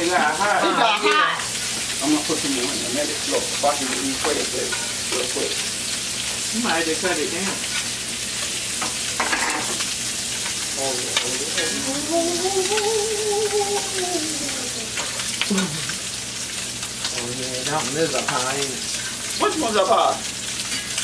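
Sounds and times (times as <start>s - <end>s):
food sizzling in oil: 0.0s - 21.0s
scrape and clink in pans: 8.8s - 9.9s.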